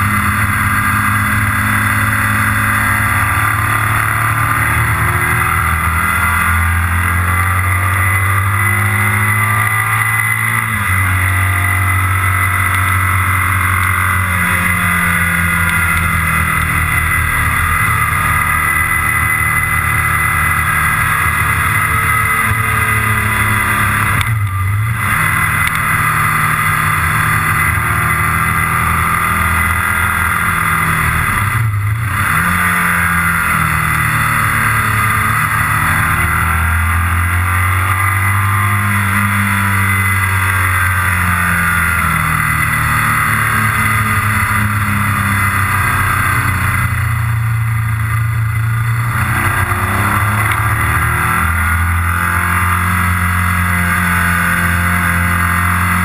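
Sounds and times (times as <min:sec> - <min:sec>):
motorcycle engine running: 0:00.0 - 0:56.0
road noise: 0:00.0 - 0:56.0.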